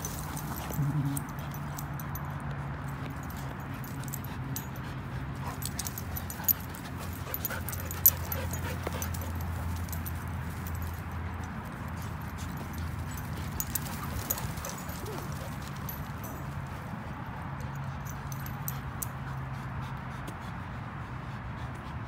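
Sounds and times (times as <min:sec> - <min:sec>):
dogs play-wrestling: 0:00.0 - 0:22.0
low dog growl: 0:00.6 - 0:01.4.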